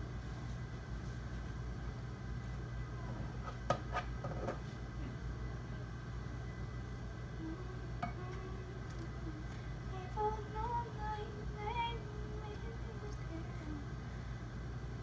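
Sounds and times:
low hum: 0.0s - 15.0s
girl singing softly: 7.2s - 14.1s.

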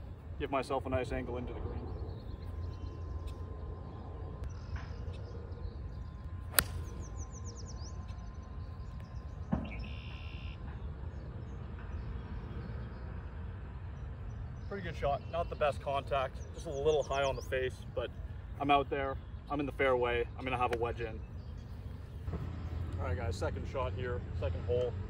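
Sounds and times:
birds chirping: 0.0s - 24.9s
golf club striking ball: 6.5s - 7.0s.

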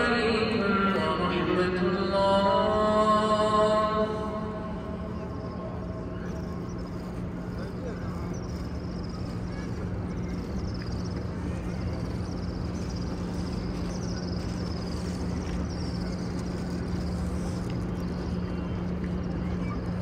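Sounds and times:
constant low hum: 0.0s - 20.0s
low crowd murmur and rustle: 0.0s - 20.0s
faint high twittering: 4.0s - 20.0s.

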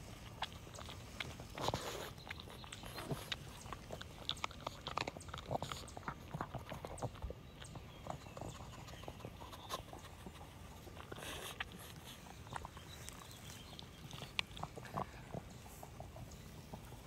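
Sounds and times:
dog sniffing: 0.0s - 17.0s.

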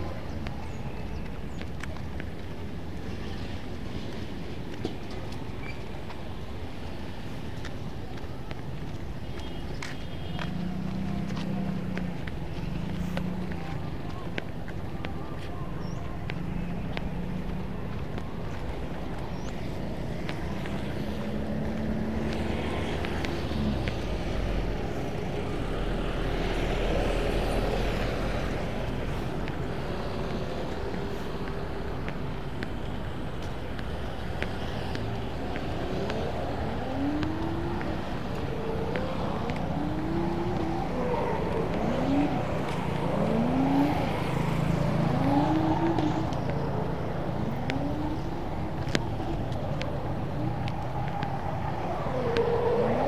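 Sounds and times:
road traffic: 0.0s - 53.0s
engine revving: 35.2s - 53.0s.

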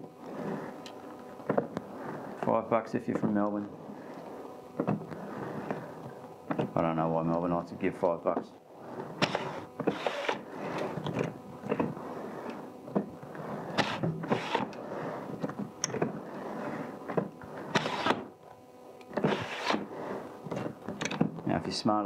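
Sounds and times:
plastic clacks and knocks: 20.5s - 21.4s.

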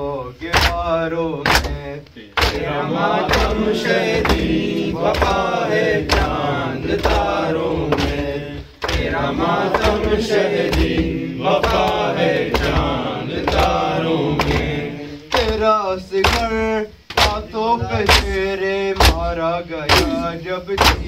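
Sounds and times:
men chanting a lament: 0.0s - 21.0s
chest-beating hand strikes: 7.9s - 15.6s, 19.9s - 21.0s.

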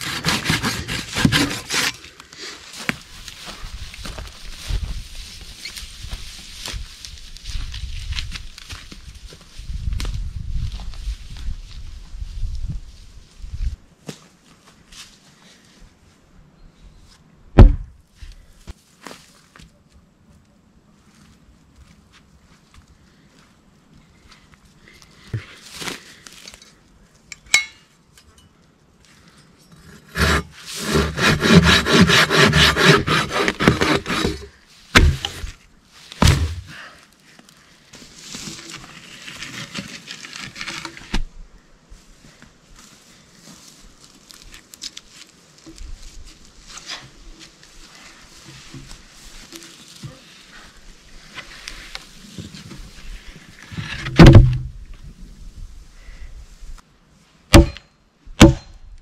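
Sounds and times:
hand saw cutting log: 0.0s - 2.0s, 29.8s - 35.5s
heavy thud of log dropped: 17.6s - 17.9s, 33.6s - 35.6s, 36.2s - 36.8s, 53.8s - 54.8s, 57.5s - 57.8s, 58.4s - 58.8s
sharp wooden knocks: 35.0s - 35.5s, 57.5s - 57.8s, 58.4s - 58.7s.

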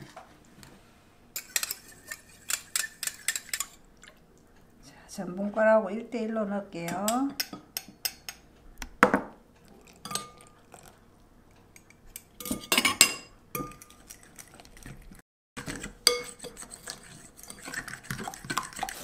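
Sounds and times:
spoon scraping bowl stirring batter: 1.4s - 3.9s, 13.6s - 19.0s
spoon clinking against glass bowl: 16.0s - 16.6s.

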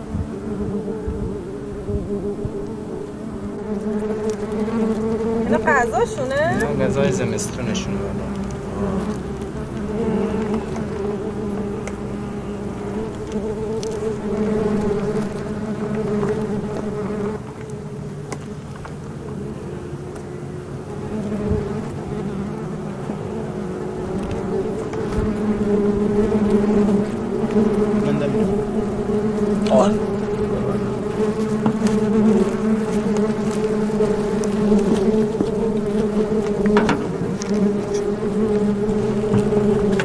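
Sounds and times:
honeybees buzzing: 0.0s - 40.0s.

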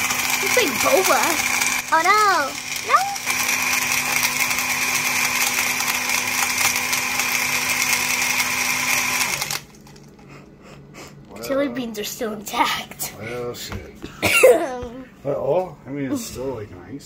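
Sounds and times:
blender motor whirring: 0.0s - 10.3s.

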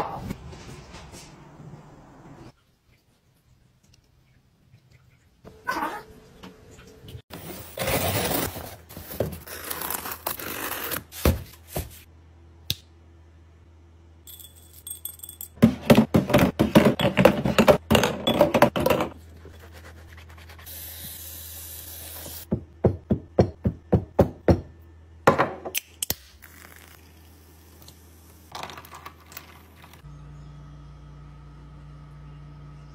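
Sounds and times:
household handling knocks and scrapes: 11.1s - 12.1s, 15.6s - 19.2s.

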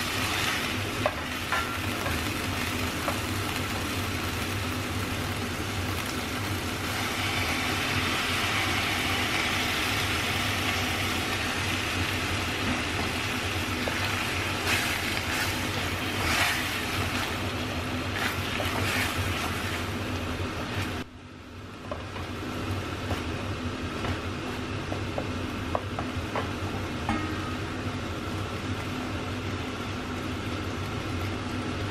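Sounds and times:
liquid sizzling in a pan: 0.0s - 21.1s
steady low hum: 0.0s - 31.9s
wooden spoon scraping a pan: 13.8s - 17.4s, 18.1s - 19.9s.

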